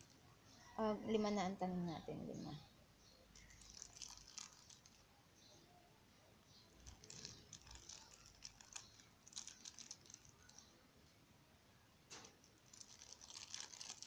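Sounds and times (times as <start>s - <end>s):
plastic bag crinkling: 3.4s - 5.1s, 6.7s - 10.8s, 12.1s - 14.0s.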